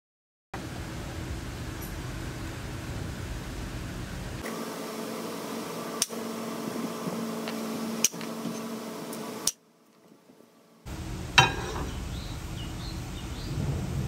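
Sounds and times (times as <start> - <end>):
steady low hum: 0.6 - 14.0.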